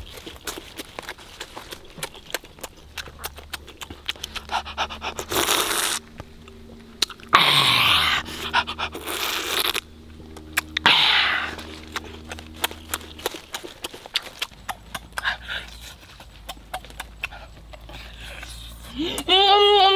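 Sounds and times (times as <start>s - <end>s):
wet chewing and lip-smacking: 0.0s - 19.4s
noisy sucking breath: 4.2s - 6.1s.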